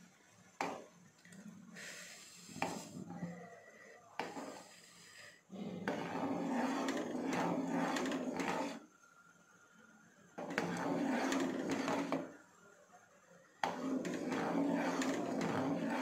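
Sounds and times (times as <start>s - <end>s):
ladle stirring and scraping pan: 4.2s - 4.8s, 5.8s - 8.9s, 10.4s - 12.4s, 13.6s - 16.0s.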